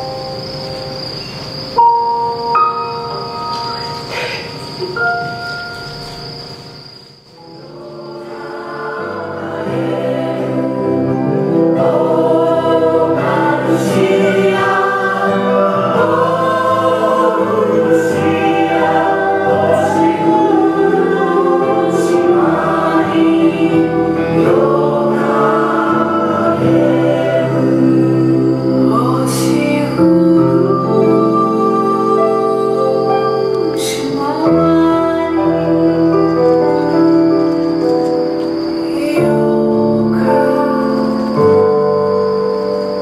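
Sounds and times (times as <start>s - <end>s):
choir singing sustained chords: 0.0s - 43.0s.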